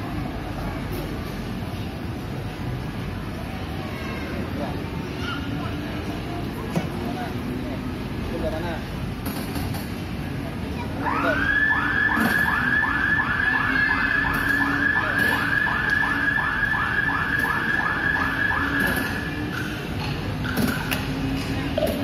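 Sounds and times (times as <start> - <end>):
electronic warning siren warbling: 11.0 - 19.6.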